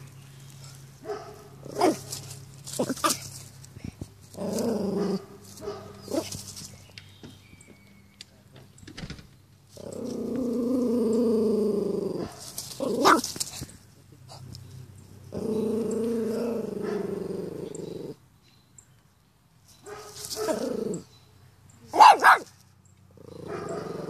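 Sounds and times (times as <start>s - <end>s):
dog barking: 1.0s - 2.1s, 5.0s - 6.3s, 19.9s - 20.6s, 21.9s - 22.6s, 23.4s - 24.0s
dog growling: 4.3s - 5.2s, 9.7s - 13.2s, 15.2s - 18.2s, 20.4s - 21.0s, 23.1s - 24.0s.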